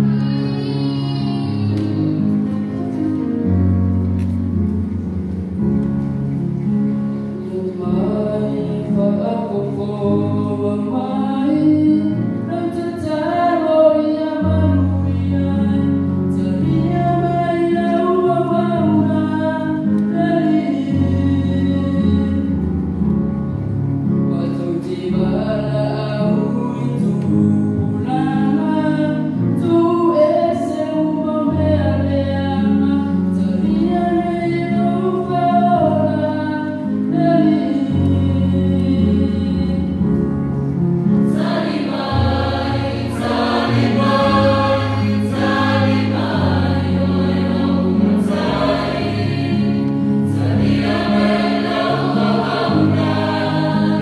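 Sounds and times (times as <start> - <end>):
mixed choir singing a hymn: 7.5 - 22.6, 27.8 - 40.0, 41.0 - 54.0.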